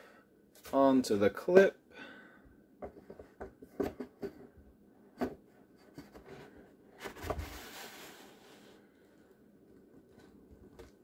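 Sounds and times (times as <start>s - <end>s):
rubbing scraping sound: 5.8s - 8.8s.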